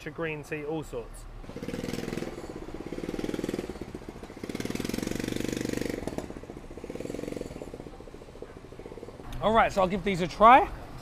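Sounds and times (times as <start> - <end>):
motorcycle engine passing: 1.4 - 9.2.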